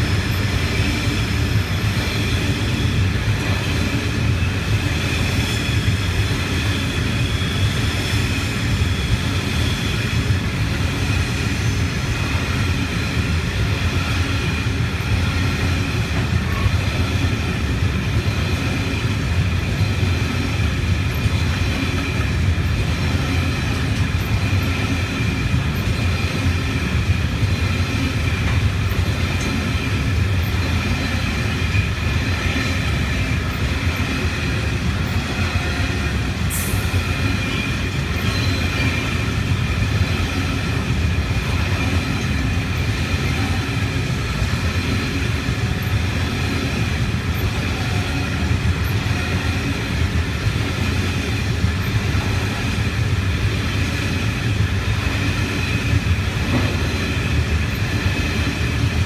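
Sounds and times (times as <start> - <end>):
train wheels rumbling on rails: 0.0 - 59.0
high-pitched wheel squeal: 35.1 - 39.3
sharp wheel squeak: 36.8 - 39.4.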